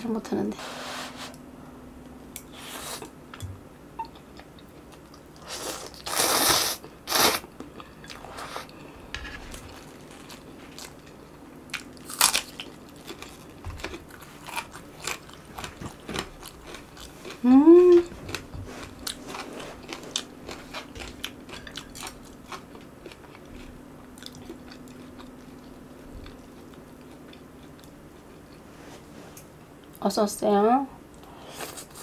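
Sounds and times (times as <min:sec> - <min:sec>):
person chewing noodles: 0:09.5 - 0:28.6.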